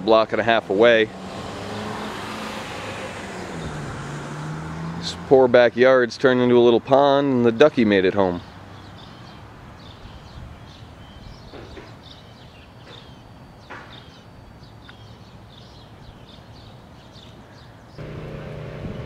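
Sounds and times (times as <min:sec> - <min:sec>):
small birds chirping: 0:07.4 - 0:19.0
steady low hum: 0:18.0 - 0:19.0.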